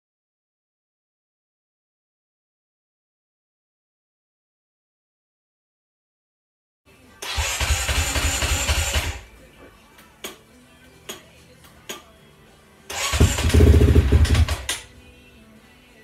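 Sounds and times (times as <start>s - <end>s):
motorcycle engine running loudly: 13.0s - 14.8s
engine sharp pops: 13.1s - 14.9s.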